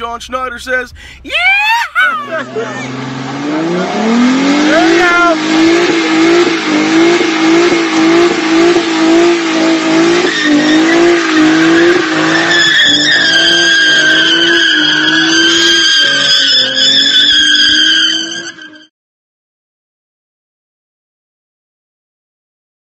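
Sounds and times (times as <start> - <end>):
car engine revving high: 2.3 - 18.8
spinning tyres hissing: 2.6 - 18.8
tyres squealing: 10.1 - 18.8.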